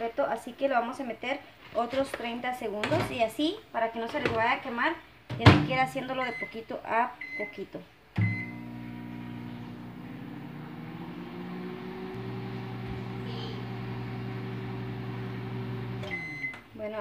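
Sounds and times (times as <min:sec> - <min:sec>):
microwave oven humming: 0:08.2 - 0:16.5.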